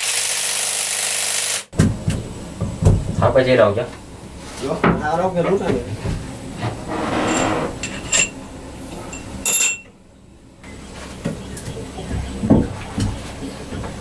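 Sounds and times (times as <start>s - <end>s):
scraping and rattling: 6.6s - 8.4s
metallic clinks of hand tools: 9.1s - 9.9s.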